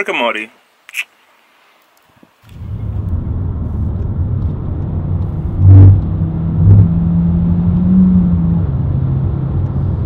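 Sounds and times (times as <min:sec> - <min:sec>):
car cabin road and engine rumble: 0:02.4 - 0:10.0.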